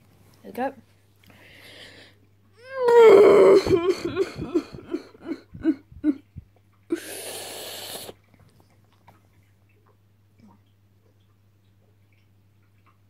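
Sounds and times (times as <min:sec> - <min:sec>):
boy coughing and sputtering: 0:03.5 - 0:06.2
long breathy exhale: 0:07.0 - 0:08.2.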